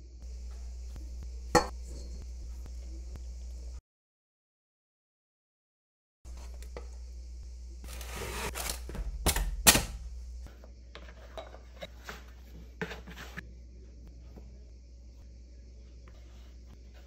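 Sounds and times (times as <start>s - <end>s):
steady low hum: 0.0s - 3.8s, 6.3s - 17.0s.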